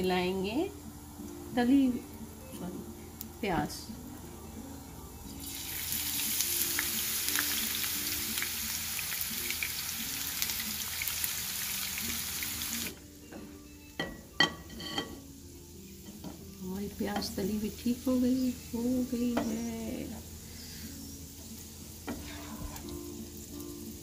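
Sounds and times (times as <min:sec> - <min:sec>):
onion sizzling in hot oil: 0:05.3 - 0:13.0, 0:14.6 - 0:24.0.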